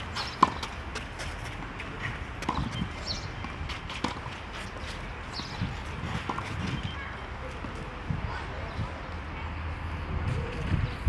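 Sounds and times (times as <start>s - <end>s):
footsteps on clay court: 0.0s - 8.1s.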